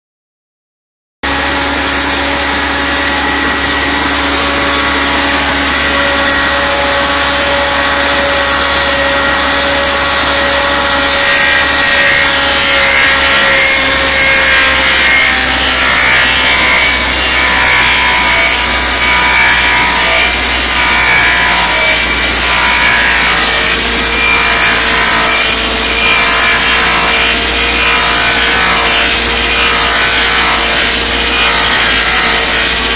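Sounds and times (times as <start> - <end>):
lathe cutters shaving wood: 1.2 - 32.9
machine hum: 1.2 - 32.9.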